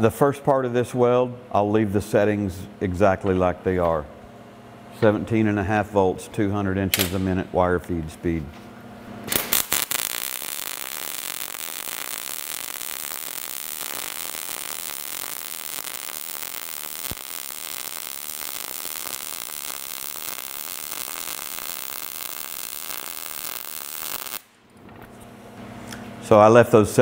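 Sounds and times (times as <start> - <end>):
welding arc crackling: 9.2 - 24.6.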